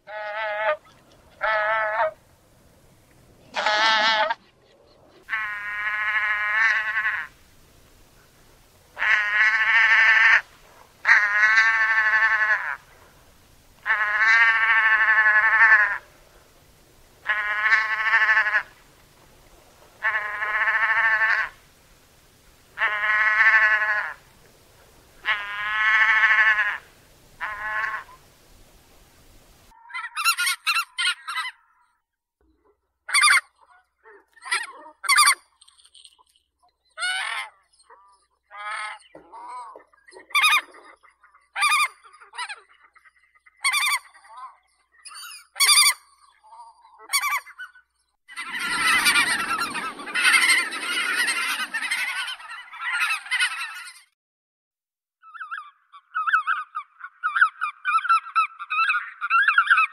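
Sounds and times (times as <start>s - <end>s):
short high-pitched goose calls: 0.0s - 2.2s, 3.5s - 4.5s, 5.2s - 7.4s, 9.0s - 12.9s, 13.8s - 16.1s, 17.2s - 18.8s, 20.0s - 21.7s, 22.8s - 24.3s, 25.2s - 28.2s, 33.1s - 36.3s, 36.9s - 41.0s, 43.6s - 54.1s
goose honking: 0.1s - 2.2s, 3.5s - 4.5s, 5.2s - 7.4s, 9.0s - 12.8s, 13.8s - 16.1s, 17.2s - 18.8s, 20.0s - 21.6s, 22.8s - 24.2s, 25.2s - 28.2s, 48.3s - 54.0s.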